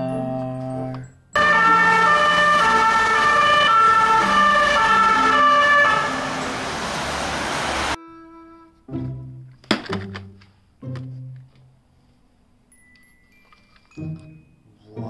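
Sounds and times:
street traffic noise: 0:00.9 - 0:08.0
two-tone emergency siren: 0:01.4 - 0:08.0.

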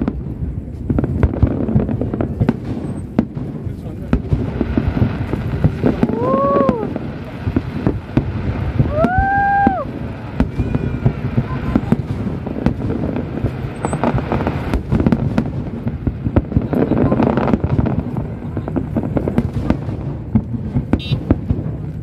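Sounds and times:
fireworks bursting and crackling: 0:00.0 - 0:22.0
whistle-like tones: 0:10.5 - 0:11.2.

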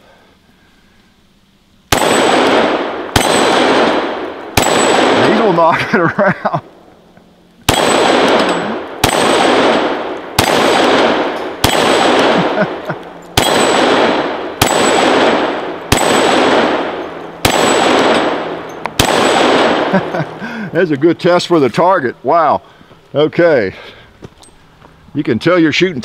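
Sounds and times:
pistol shots: 0:01.9 - 0:05.7, 0:07.6 - 0:20.4.

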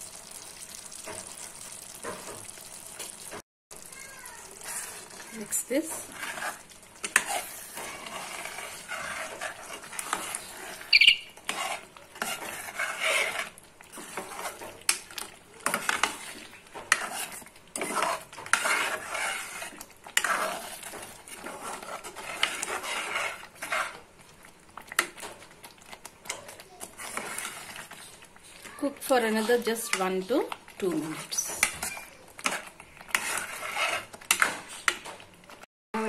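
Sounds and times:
metal ladle scraping pot: 0:04.6 - 0:15.0, 0:15.6 - 0:24.1, 0:26.3 - 0:28.7, 0:30.9 - 0:35.1.

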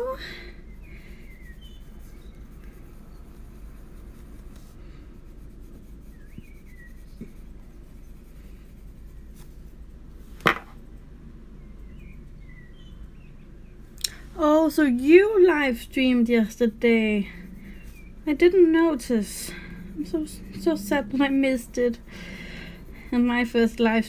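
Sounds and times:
coloured pencil scratching on paper: 0:00.7 - 0:09.8, 0:14.9 - 0:24.0.

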